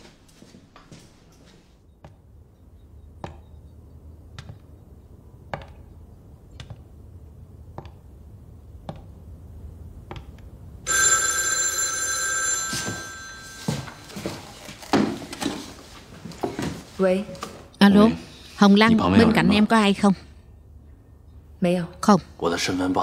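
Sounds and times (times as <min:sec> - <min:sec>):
telephone bell ringing: 0:10.9 - 0:14.7.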